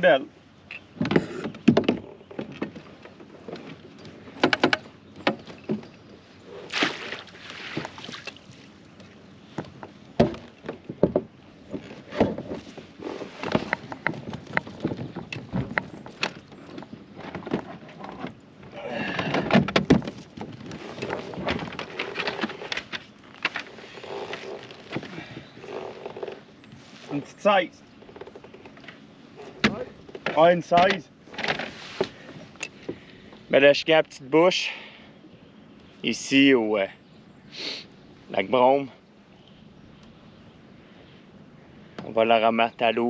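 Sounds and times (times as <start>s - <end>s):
knocks against hull: 0.9s - 2.8s, 9.5s - 12.7s, 19.0s - 23.6s, 29.6s - 32.2s
water splashing: 6.6s - 8.8s.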